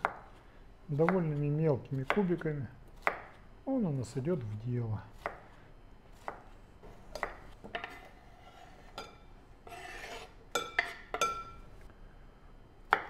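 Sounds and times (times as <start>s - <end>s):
knife scraping cutting board: 6.2s - 11.1s.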